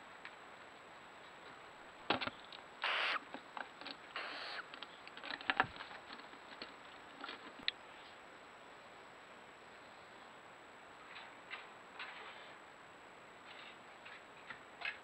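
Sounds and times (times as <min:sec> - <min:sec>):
owl hissing calls: 0:02.8 - 0:03.2, 0:04.2 - 0:04.7.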